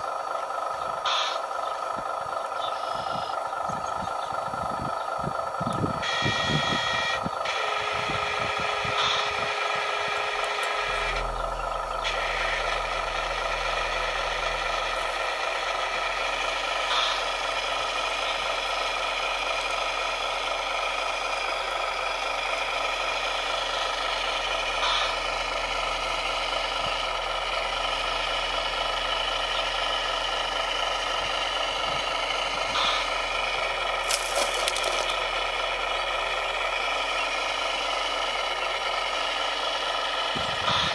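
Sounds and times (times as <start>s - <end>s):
small motors and gears whining: 5.6s - 15.0s, 34.0s - 35.3s
dirt and stones clattering: 34.0s - 35.2s.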